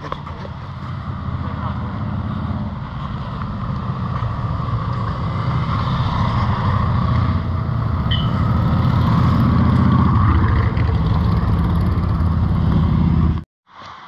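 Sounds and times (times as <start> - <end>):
motorcycle engine running: 6.6 - 13.4.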